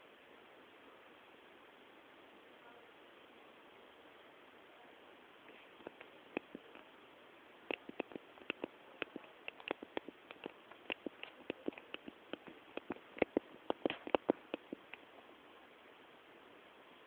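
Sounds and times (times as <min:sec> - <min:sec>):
quick sharp clicks: 0:07.7 - 0:15.0.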